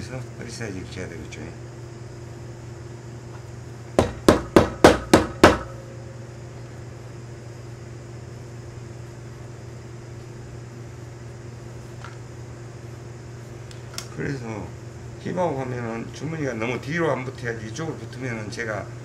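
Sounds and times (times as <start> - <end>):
sharp knocks: 4.0 - 5.8.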